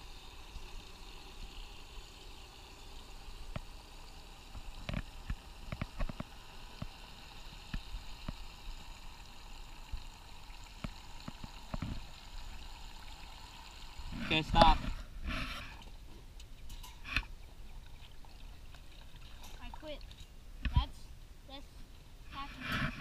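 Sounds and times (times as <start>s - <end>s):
water gurgling from a hose: 0.0s - 20.2s
small clicks and pops: 3.4s - 3.8s, 4.5s - 7.0s, 7.6s - 8.5s, 9.9s - 12.6s.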